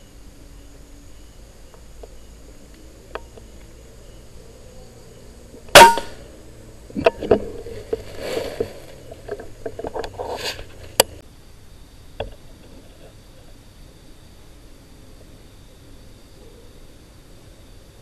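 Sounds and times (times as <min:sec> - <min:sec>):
rifle shot: 0:05.8 - 0:06.2.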